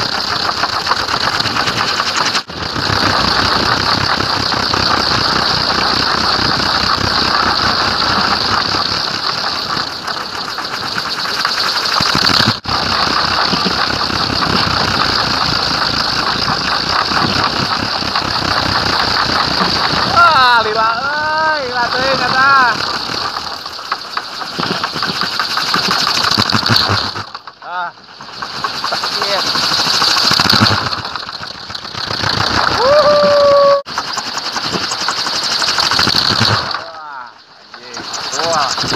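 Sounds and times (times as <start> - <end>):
wind propeller whirring: 0.0 - 38.9.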